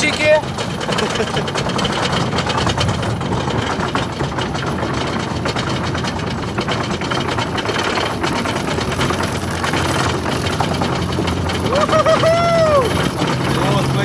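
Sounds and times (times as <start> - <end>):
roller coaster lift chain clattering: 0.0 - 14.0.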